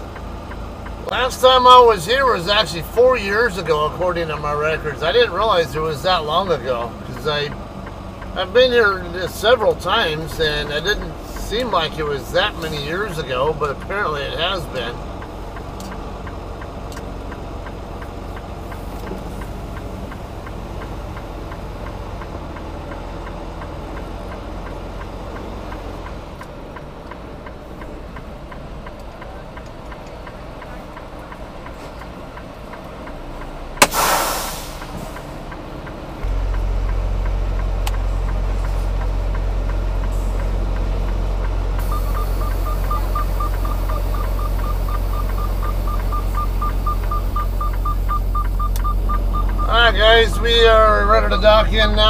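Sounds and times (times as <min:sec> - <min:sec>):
truck diesel engine idling: 0:00.0 - 0:52.0
air burst hissing: 0:33.8 - 0:35.4.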